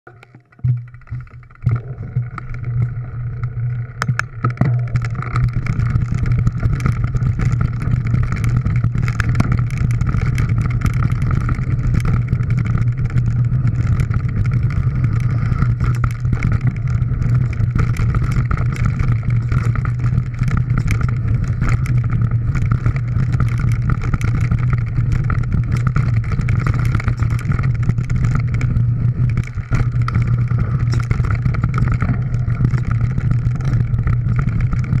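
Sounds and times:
bike clicks and rattles: 0.1s - 35.0s
wind and tyre rumble: 0.7s - 35.0s.

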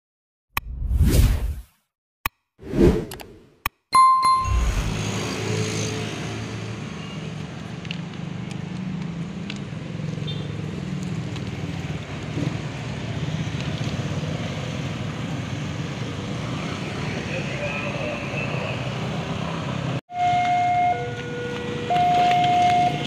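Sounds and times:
motorcycle engines passing: 4.5s - 7.3s, 8.6s - 20.0s.

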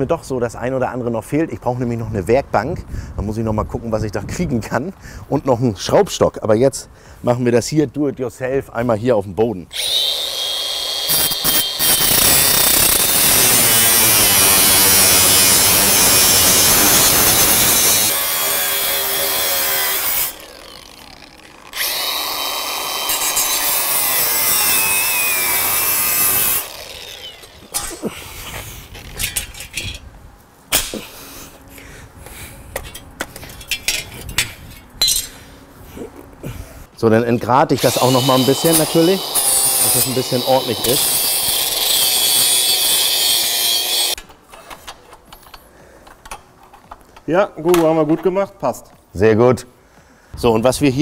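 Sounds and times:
angle grinder cutting steel: 9.7s - 28.1s, 37.8s - 44.3s.

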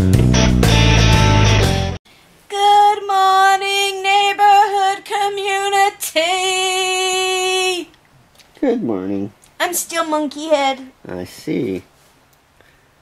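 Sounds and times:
blues electric guitar music: 0.0s - 2.0s
woman singing wordlessly: 2.5s - 8.0s, 9.6s - 10.9s.

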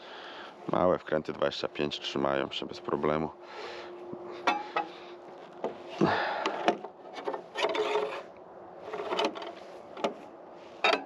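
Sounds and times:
metal scraping and rubbing: 7.1s - 11.0s.

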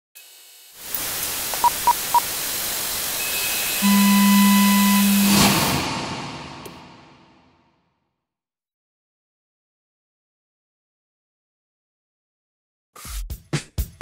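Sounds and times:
electronic static hiss: 0.2s - 5.5s
test signal tones: 1.6s - 2.3s, 3.2s - 5.8s
short beeps: 3.2s - 5.6s.

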